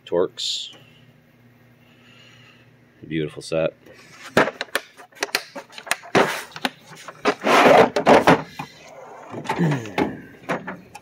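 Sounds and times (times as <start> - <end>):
toolbox drawer sliding: 6.2 - 10.8.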